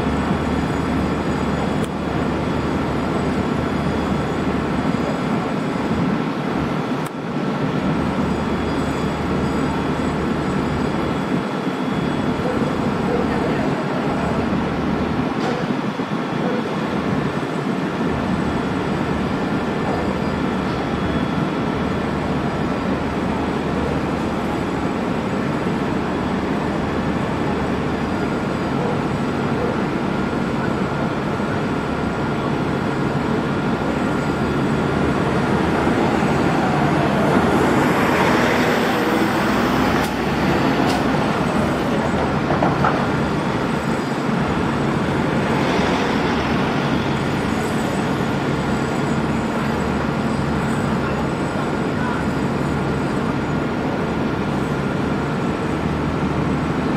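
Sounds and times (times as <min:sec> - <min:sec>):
road traffic noise: 0:00.0 - 0:56.9
vehicle passing: 0:45.2 - 0:48.4.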